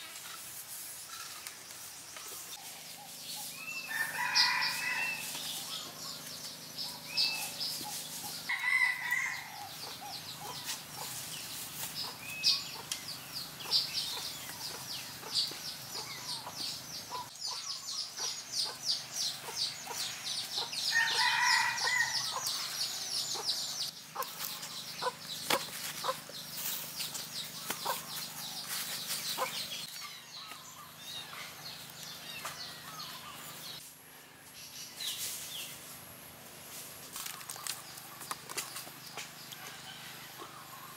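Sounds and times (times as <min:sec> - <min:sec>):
rooster-like calls: 0:03.8 - 0:05.7, 0:08.5 - 0:09.8, 0:20.9 - 0:22.6
chickens clucking: 0:09.6 - 0:17.6, 0:18.2 - 0:30.0.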